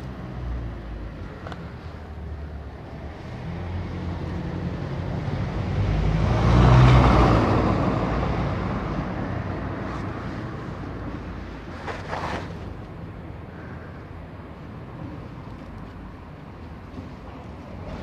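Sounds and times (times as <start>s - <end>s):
vehicle passing by: 2.8s - 12.6s.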